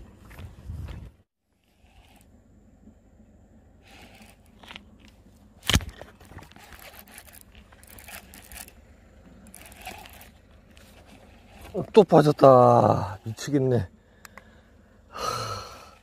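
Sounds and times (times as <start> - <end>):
hands handling fishing gear: 3.9 - 12.4.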